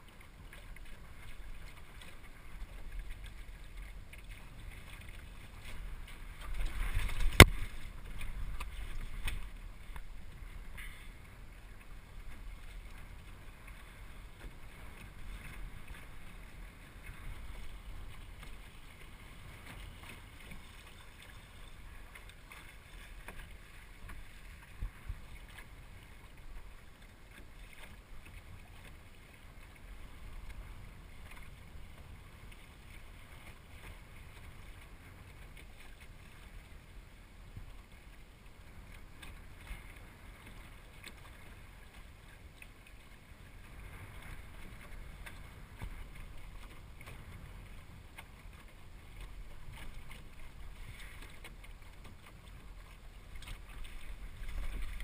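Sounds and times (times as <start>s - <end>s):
water lapping along hull: 0.0s - 55.0s
wind rumble on microphone: 1.1s - 22.2s, 23.3s - 26.8s, 43.0s - 55.0s.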